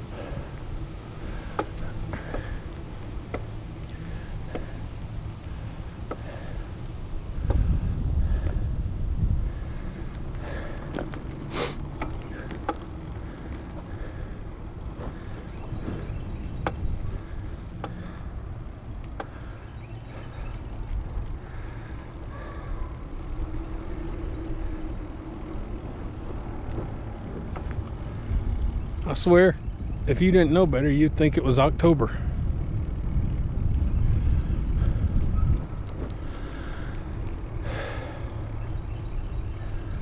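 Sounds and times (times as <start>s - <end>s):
bicycle tyre rumble: 0.0s - 40.0s
wind on microphone: 7.2s - 11.5s, 20.9s - 40.0s.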